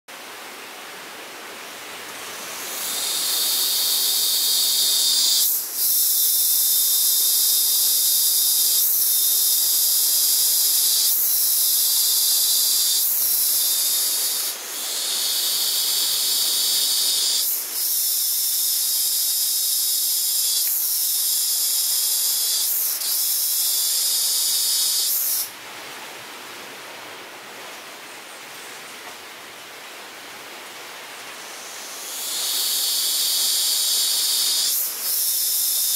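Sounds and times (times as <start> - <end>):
high-pitched hissing buzz: 2.1 - 25.6, 31.3 - 35.9.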